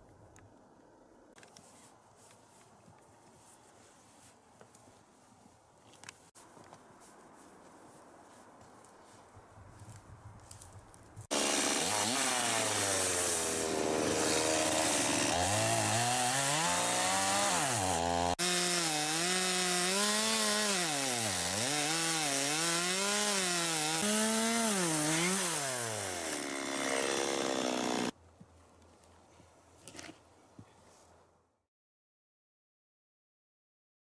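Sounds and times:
chainsaw cutting wood: 11.3s - 28.2s.

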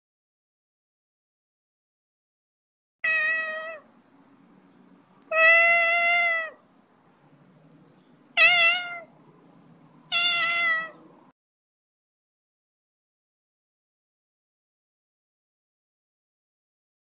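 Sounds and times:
cat meowing: 3.0s - 3.9s, 5.2s - 6.6s, 8.3s - 9.1s, 10.1s - 11.1s.

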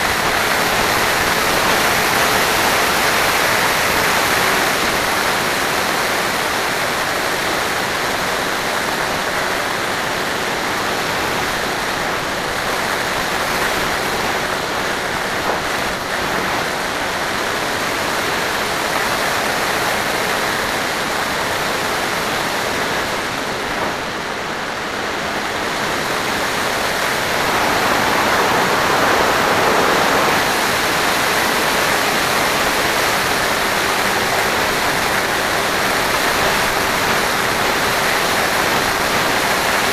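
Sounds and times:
wind and propeller rushing: 21.4s - 39.9s.

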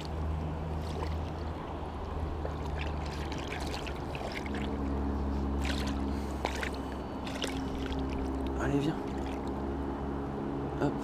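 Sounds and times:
steady low hum: 0.0s - 11.0s
fish splashing at water surface: 0.8s - 9.6s.

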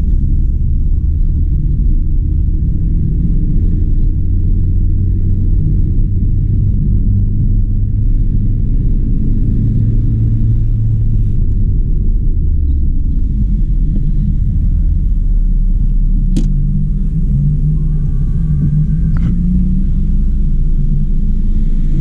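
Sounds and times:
car engine and tyres on wet road: 0.0s - 22.0s.

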